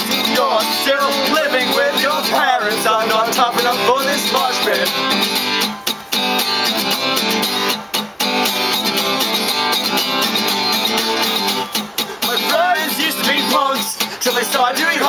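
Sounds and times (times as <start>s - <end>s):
man singing: 0.0s - 5.2s, 12.0s - 15.0s
acoustic guitar strumming: 0.0s - 15.0s.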